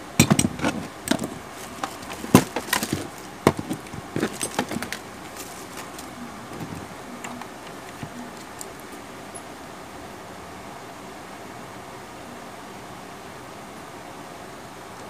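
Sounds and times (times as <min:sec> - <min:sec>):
small parts clicking and knocking: 0:00.0 - 0:09.5.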